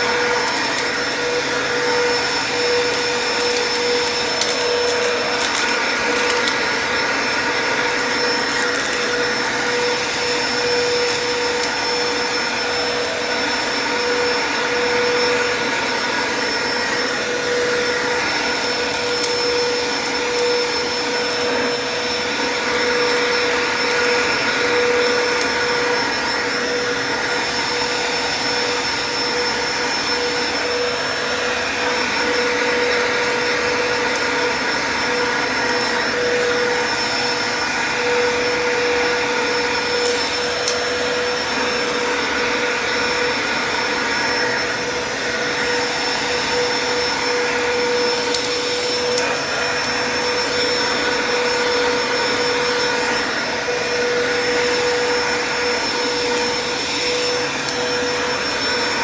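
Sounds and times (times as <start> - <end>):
vacuum cleaner running: 0.0 - 59.0.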